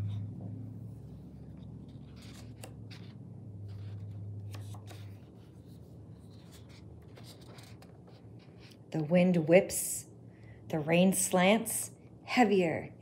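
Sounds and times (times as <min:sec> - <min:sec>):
book pages rustling: 0:00.0 - 0:08.9
low background hum: 0:00.0 - 0:13.0.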